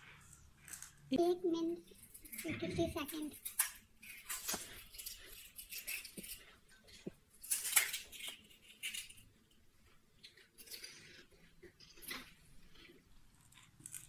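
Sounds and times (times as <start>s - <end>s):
wet chewing and slurping: 9.8s - 14.0s.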